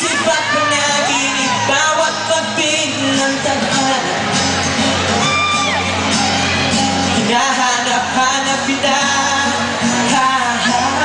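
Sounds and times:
man singing: 0.0 - 4.4, 7.1 - 11.0
acoustic guitar: 0.0 - 11.0.

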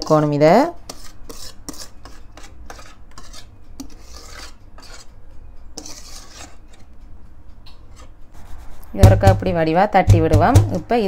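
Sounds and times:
utensil scraping a mixing bowl: 0.9 - 5.2, 5.8 - 7.0.

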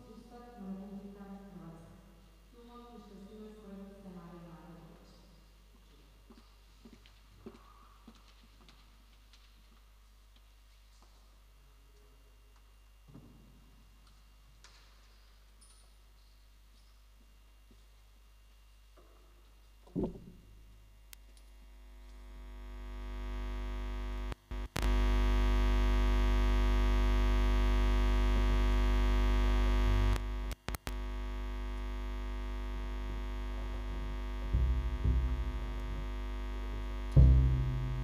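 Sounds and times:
plucked double bass: 19.9 - 20.4, 33.7 - 38.0
electronic buzzing drone: 21.6 - 38.0.

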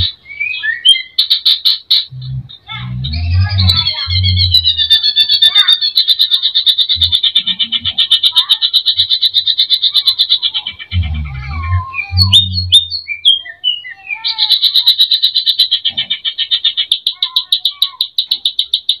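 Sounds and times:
bird trilling and whistling: 0.0 - 19.0
low thumps: 2.1 - 4.7, 10.9 - 12.9.

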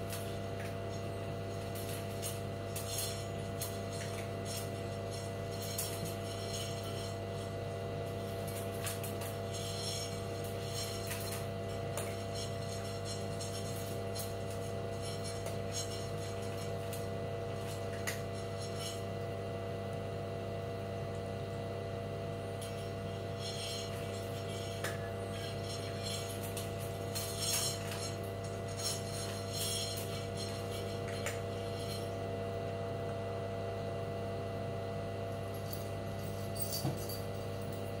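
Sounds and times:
steady background hum: 0.0 - 38.0
clinks against metal bowl: 22.6 - 32.3.

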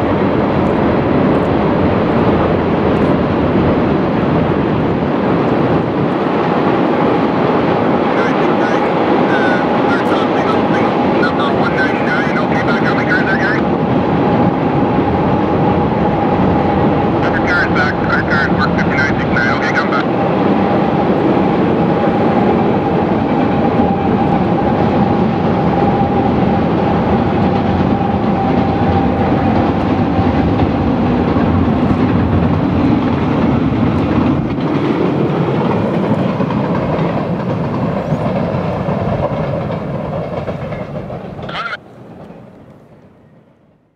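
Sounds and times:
steady high tone: 8.2 - 13.6
train wheels clattering on rails: 20.1 - 43.2.

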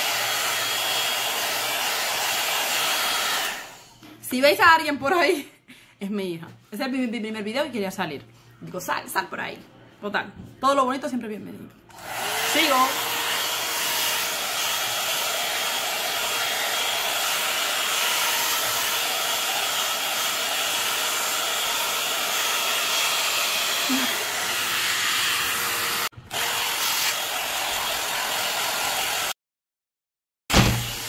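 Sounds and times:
hot air brush fan blowing: 0.0 - 3.9, 11.9 - 29.3.

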